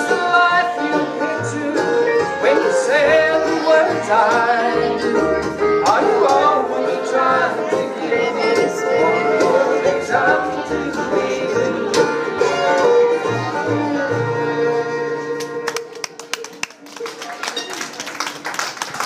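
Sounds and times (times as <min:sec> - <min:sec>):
bluegrass band playing: 0:00.0 - 0:16.8
people clapping: 0:15.4 - 0:19.0.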